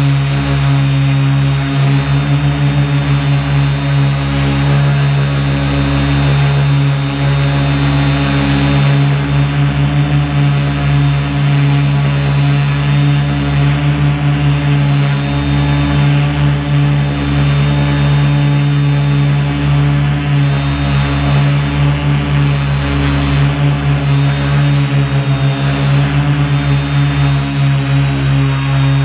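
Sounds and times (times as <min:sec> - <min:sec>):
drone propellers buzzing: 0:00.0 - 0:29.0.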